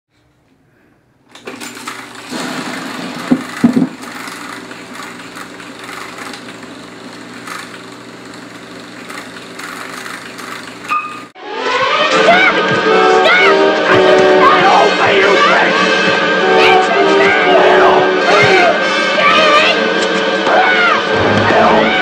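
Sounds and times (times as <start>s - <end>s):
mechanical clatter: 1.3s - 11.3s
film projector whirring: 1.3s - 11.4s
knocks: 3.3s - 4.0s
brief high tone: 10.9s - 19.7s.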